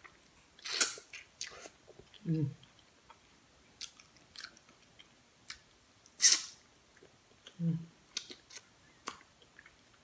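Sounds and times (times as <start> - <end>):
person chewing with lip smacks: 3.8 - 9.8.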